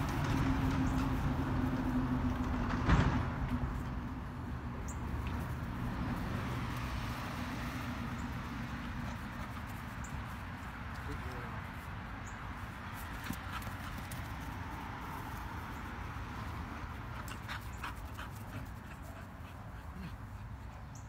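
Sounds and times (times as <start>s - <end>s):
low engine-like hum: 0.0s - 10.2s.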